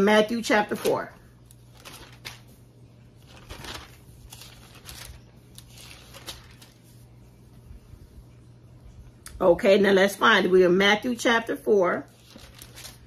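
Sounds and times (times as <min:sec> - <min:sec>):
faint low hum: 0:00.0 - 0:13.0
paper pages rustling: 0:00.7 - 0:07.3, 0:12.1 - 0:13.0.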